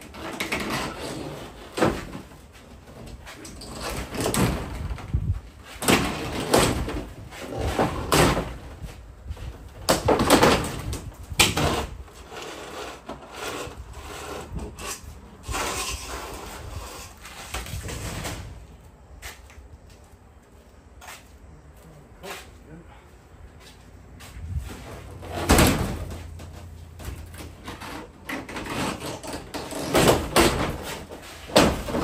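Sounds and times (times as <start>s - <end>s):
wooden boards being pried off: 5.8s - 8.8s, 9.8s - 12.0s, 25.2s - 32.0s.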